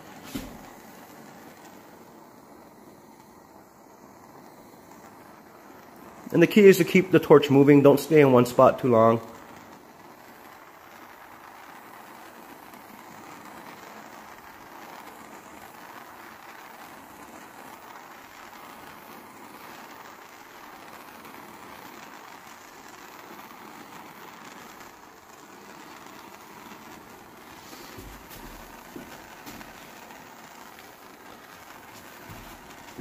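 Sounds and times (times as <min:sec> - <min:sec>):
propane torch flame hissing: 0:00.0 - 0:33.0.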